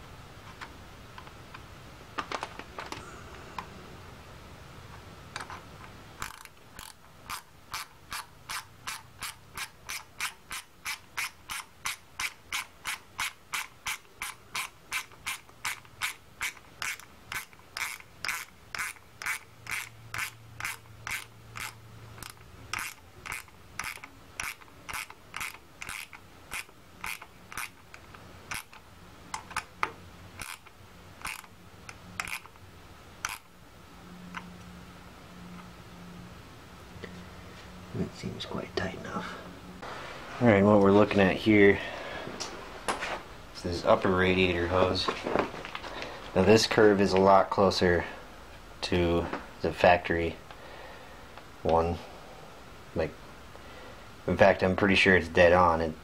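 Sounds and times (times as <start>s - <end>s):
hand ratchet clicking: 6.2s - 29.7s, 30.4s - 32.6s, 33.2s - 33.5s.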